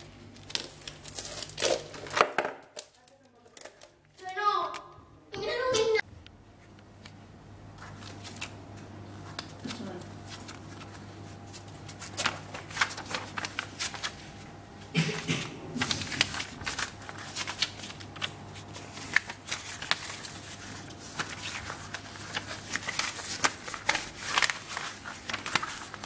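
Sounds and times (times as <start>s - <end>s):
booklet pages turning: 7.8s - 26.0s.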